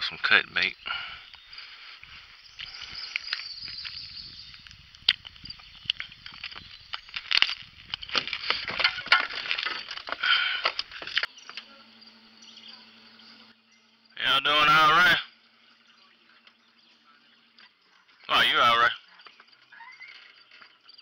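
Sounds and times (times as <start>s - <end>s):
rustling and clicks of fishing gear: 1.2s - 11.7s.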